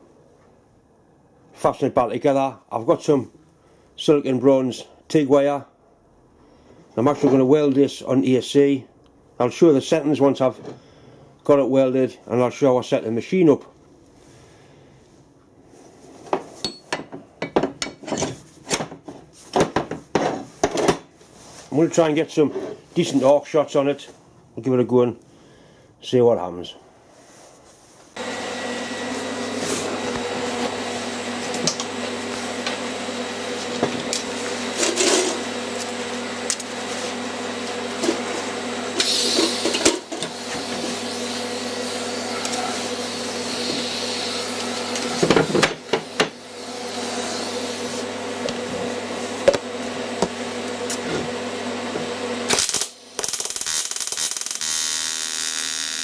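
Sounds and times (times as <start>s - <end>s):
welding arc buzzing and crackling: 39.0s - 48.1s, 52.4s - 56.0s.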